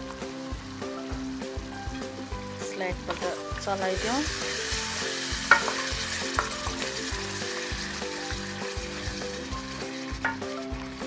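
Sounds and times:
gravy sizzling in a pan: 0.0s - 11.0s
wooden spatula scraping a pan: 3.1s - 11.0s
spatula knocking on a pan: 5.5s - 6.9s, 10.2s - 10.5s.

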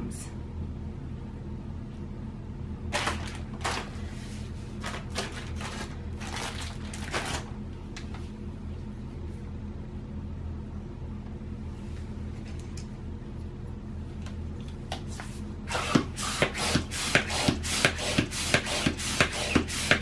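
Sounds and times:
low steady hum: 0.0s - 20.0s
plastic bag rustling: 2.9s - 8.3s.

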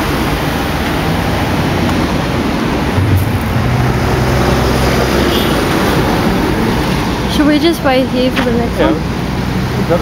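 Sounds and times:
road traffic noise: 0.0s - 10.0s.

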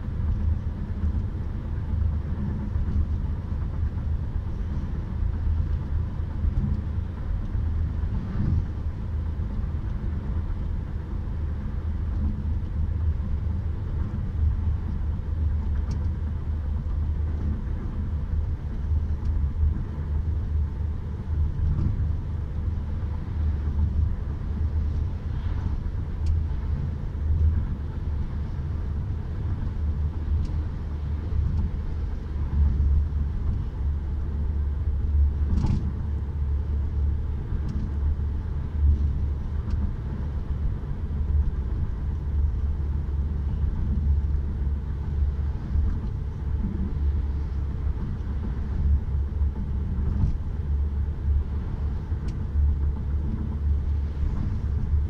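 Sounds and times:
car road noise rumble: 0.0s - 55.0s.

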